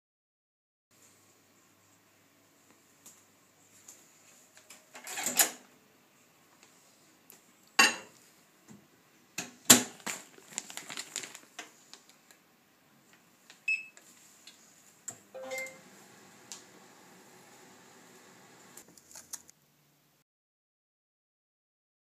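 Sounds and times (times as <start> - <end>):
frozen food bag rustling: 9.9 - 12.4
microwave oven humming: 15.1 - 18.8
short high beep: 15.4 - 15.8.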